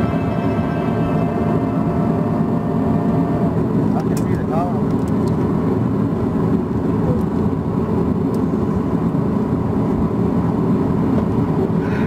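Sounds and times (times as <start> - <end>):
jet engines idling: 0.0 - 12.0
wheels rolling on taxiway: 2.4 - 12.0.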